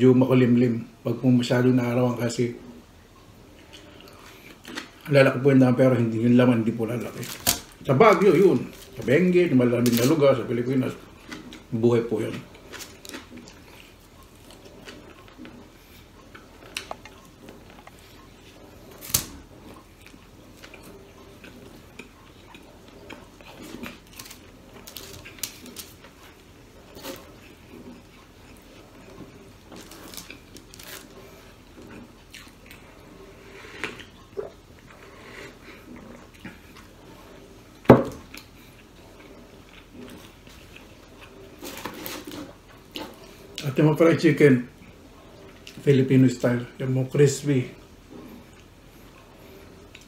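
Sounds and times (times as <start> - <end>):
sipping and eating sounds: 31.2 - 37.6.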